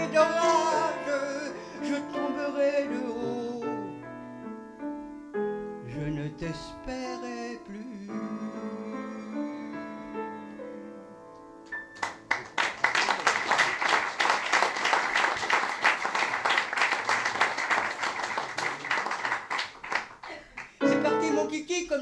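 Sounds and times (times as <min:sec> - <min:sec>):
piano chords: 0:00.0 - 0:12.7, 0:20.8 - 0:22.0
audience applause: 0:12.0 - 0:20.8.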